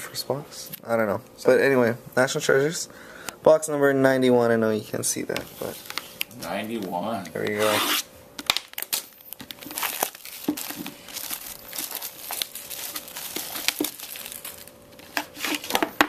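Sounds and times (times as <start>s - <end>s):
plastic shrink wrap crinkling: 8.4s - 16.0s.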